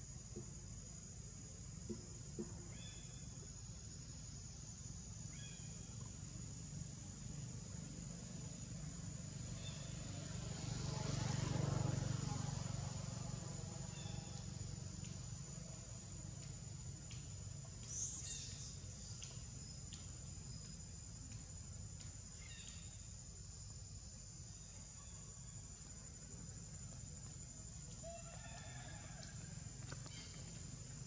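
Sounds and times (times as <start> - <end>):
high insect drone: 0.0 - 31.0
light ticks: 16.3 - 17.3, 19.1 - 22.8.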